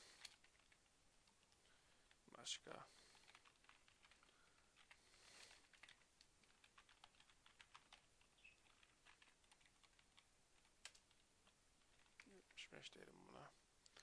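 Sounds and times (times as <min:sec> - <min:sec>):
soft hiss: 0:00.0 - 0:06.7
typing on computer keyboard: 0:00.2 - 0:01.4, 0:03.1 - 0:05.0, 0:05.6 - 0:12.3.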